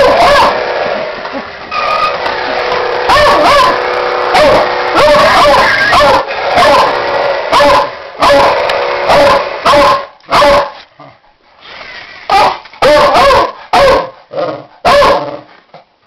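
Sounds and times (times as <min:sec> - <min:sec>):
dog barking loudly: 0:00.0 - 0:00.7, 0:03.0 - 0:10.9, 0:12.3 - 0:15.4.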